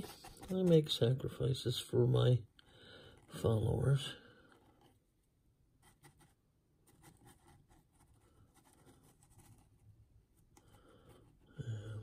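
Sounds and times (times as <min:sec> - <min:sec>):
paintbrush scraping gritty paste: 0:00.0 - 0:01.0.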